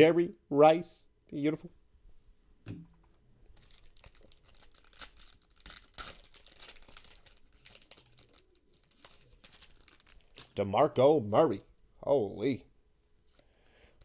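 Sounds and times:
foil wrapper tearing and crinkling: 0:03.6 - 0:10.6.

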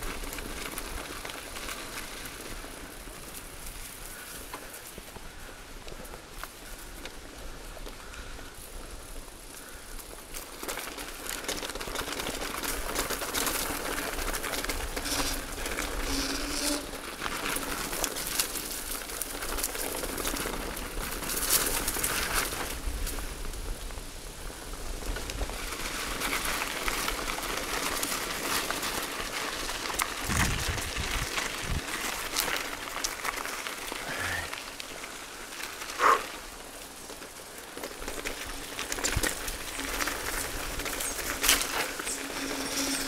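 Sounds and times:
tyres crackling over dry leaves: 0:00.0 - 0:43.0
bike frame rattling: 0:09.6 - 0:23.3, 0:25.0 - 0:36.3, 0:37.1 - 0:43.0.

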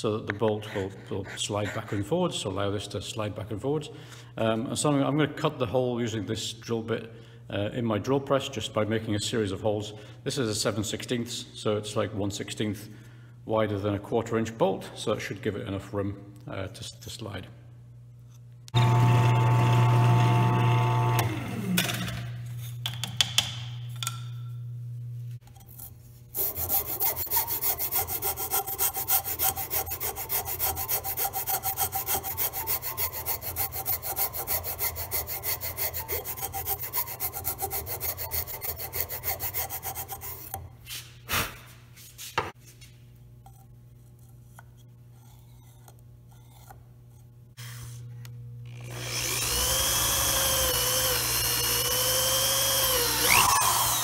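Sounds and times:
drill press motor humming: 0:18.7 - 0:21.8, 0:48.6 - 0:54.0
hand file rasping plywood: 0:26.4 - 0:40.6.

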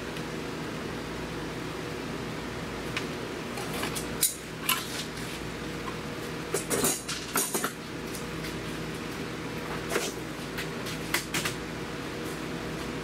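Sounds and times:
steady background hum: 0:00.0 - 0:13.0.

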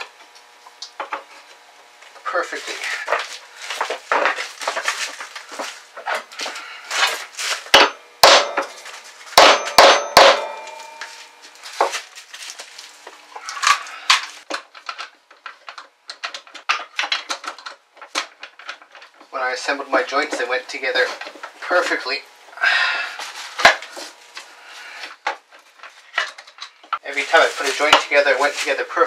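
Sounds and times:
clatter of wood and tools: 0:02.7 - 0:07.8, 0:13.4 - 0:19.3, 0:25.0 - 0:28.8
hammer striking wood: 0:07.7 - 0:08.8, 0:09.4 - 0:11.0
ringing tone: 0:09.6 - 0:11.2.

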